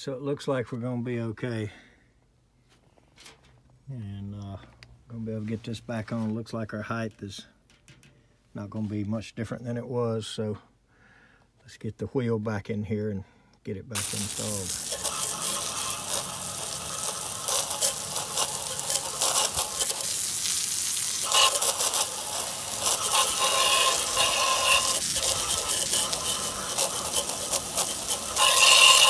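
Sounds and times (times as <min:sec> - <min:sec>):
water jet spraying on metal: 0:14.0 - 0:29.0.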